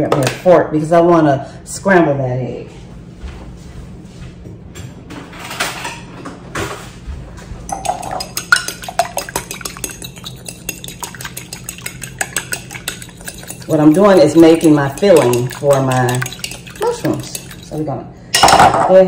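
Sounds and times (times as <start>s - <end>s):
fork clinking against glass bowl: 7.7s - 17.8s.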